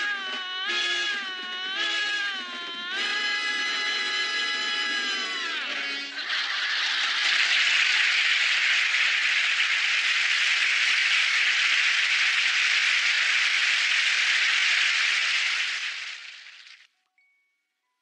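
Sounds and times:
studio audience applauding: 2.7 - 16.8.

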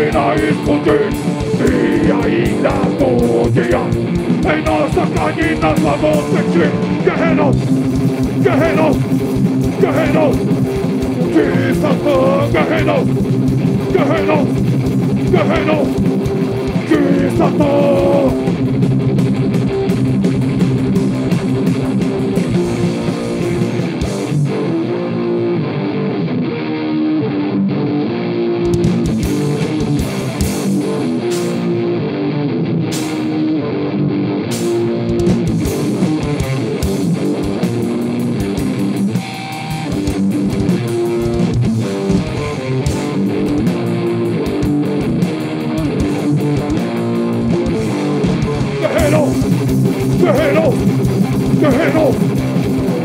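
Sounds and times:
shouted vocals: 0.0 - 7.6, 8.4 - 9.0, 9.7 - 10.5, 11.2 - 13.2, 13.9 - 14.6, 15.3 - 16.0, 16.8 - 18.5, 48.7 - 49.4, 50.1 - 50.9, 51.5 - 52.3
pounding drums: 0.0 - 24.4, 47.6 - 53.0
distorted electric guitars: 0.0 - 53.0.

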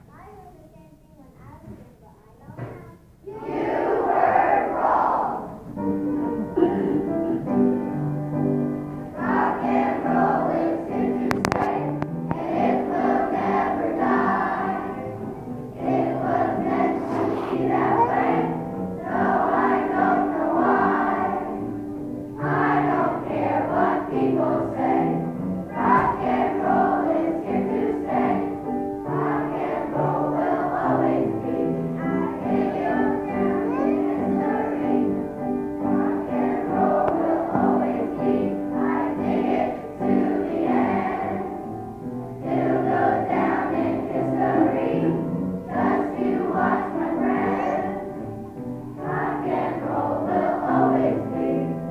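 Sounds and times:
children's choir singing: 2.6 - 51.9.

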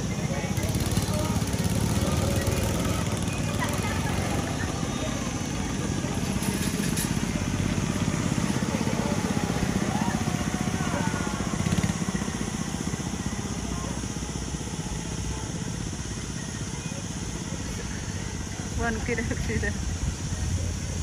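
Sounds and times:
go-kart engines running: 0.0 - 21.0.

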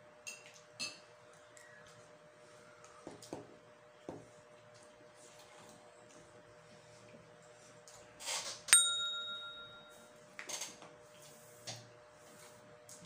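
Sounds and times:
bright ding: 8.7 - 10.1.

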